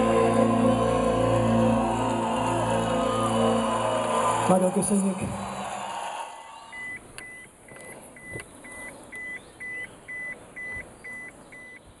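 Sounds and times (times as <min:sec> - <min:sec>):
car warning chime beeping: 0:06.7 - 0:11.9.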